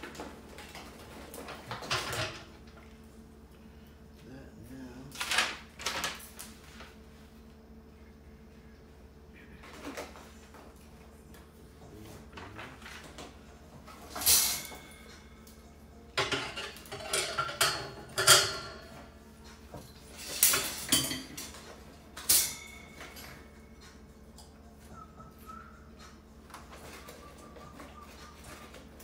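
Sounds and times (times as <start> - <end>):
metal baskets clanking and rattling: 0.0 - 2.7, 12.2 - 15.3, 16.2 - 23.6.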